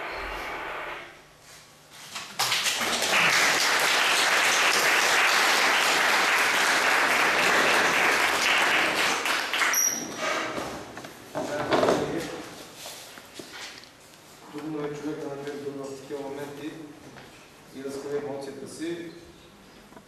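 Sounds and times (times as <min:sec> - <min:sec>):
crowd applause: 0:02.4 - 0:09.8.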